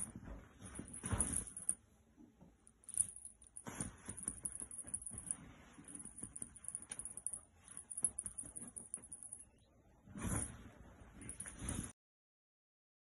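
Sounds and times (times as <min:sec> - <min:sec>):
fabric rustling: 0:00.0 - 0:01.8, 0:02.9 - 0:09.3, 0:10.0 - 0:12.0.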